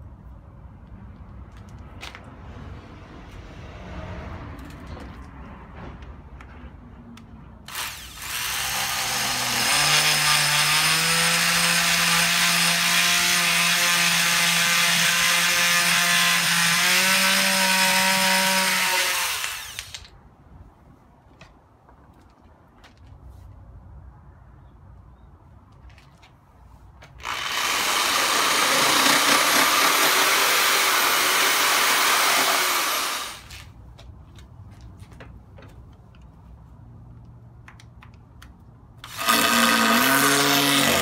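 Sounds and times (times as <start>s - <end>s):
oscillating multi-tool cutting wood: 7.7s - 20.1s, 27.2s - 33.7s, 39.0s - 41.0s.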